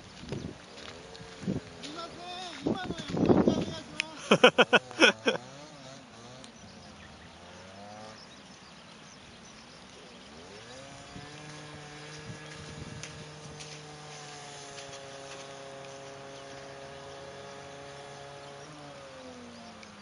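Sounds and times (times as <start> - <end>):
small motorcycle engine revving: 0.0 - 20.0
person laughing or calling out: 4.0 - 5.5.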